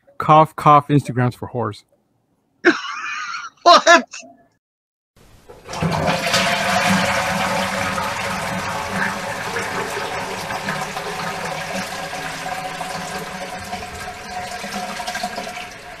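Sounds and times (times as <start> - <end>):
toilet flushing: 5.3 - 16.0.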